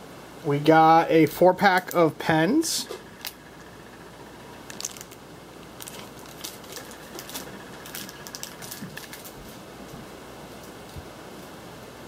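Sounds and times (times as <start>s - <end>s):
clicks and rustles of handling: 4.6s - 9.6s.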